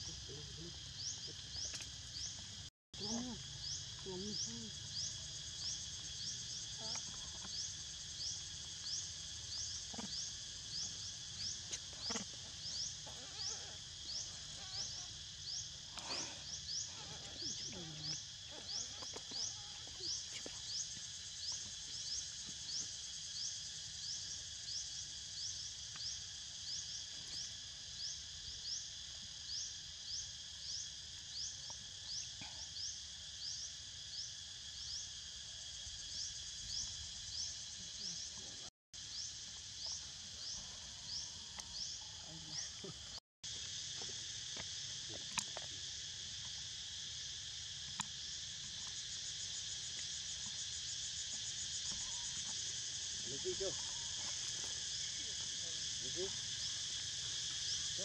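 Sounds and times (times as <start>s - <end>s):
insects chorus: 0.0s - 58.0s
insect rising chirp: 0.2s - 58.0s.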